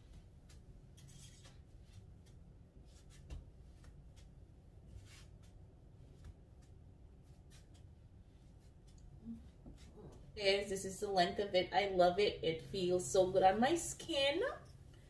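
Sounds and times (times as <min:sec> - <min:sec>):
clothing rustling: 0:00.0 - 0:10.4.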